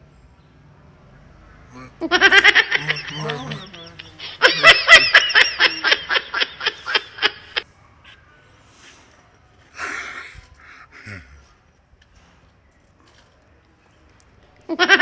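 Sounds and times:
person laughing: 1.8 - 7.6.

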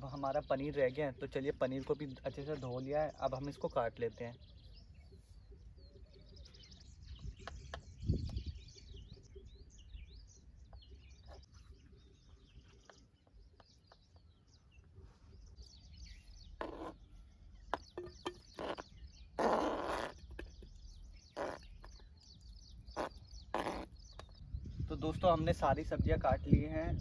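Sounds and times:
small birds chirping: 0.0 - 27.0
wind rumble on microphone: 6.4 - 11.4, 20.3 - 27.0.

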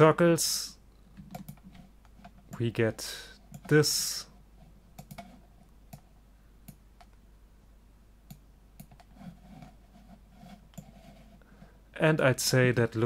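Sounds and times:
faint low hum: 0.0 - 13.0
computer mouse clicks: 0.9 - 2.6, 4.9 - 7.2, 8.3 - 9.7.

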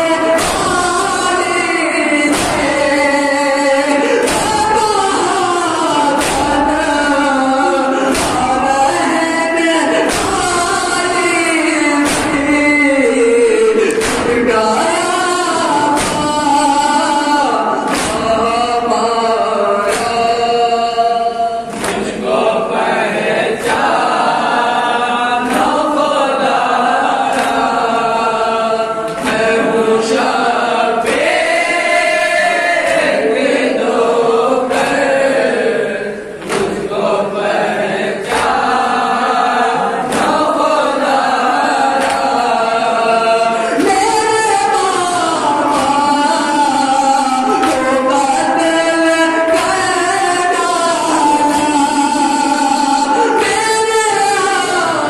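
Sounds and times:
group of men chanting: 0.0 - 55.0
person singing into a microphone: 0.0 - 55.0
chest-beating slaps: 0.2 - 7.2, 7.9 - 9.2, 9.9 - 19.1, 19.7 - 20.6, 21.6 - 22.4, 23.5 - 28.1, 29.0 - 35.4, 36.4 - 37.2, 38.2 - 42.7, 45.5 - 46.5, 47.5 - 48.1.

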